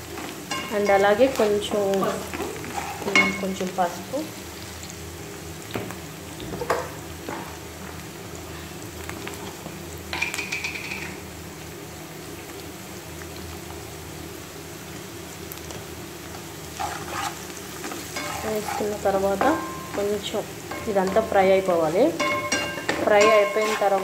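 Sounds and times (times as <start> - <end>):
onions sizzling in oil: 0.0 - 24.0
wooden spatula scraping pan: 1.9 - 3.5, 16.7 - 21.3, 22.2 - 24.0.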